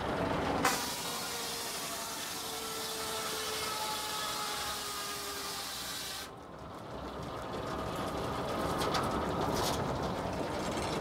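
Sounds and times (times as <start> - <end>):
sawmill machinery rumble: 0.0 - 11.0
circular saw blade cutting log: 0.6 - 6.4.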